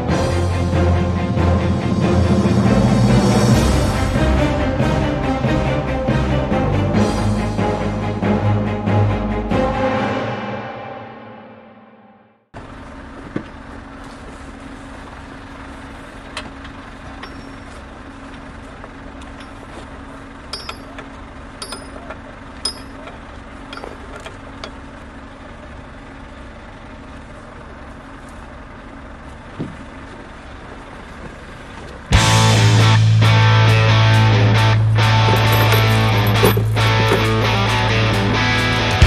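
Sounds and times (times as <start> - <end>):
diesel truck engine idling: 0.0 - 9.7, 12.6 - 39.0
metallic clinks: 17.2 - 17.7, 20.5 - 21.0, 21.6 - 23.1, 35.0 - 37.6.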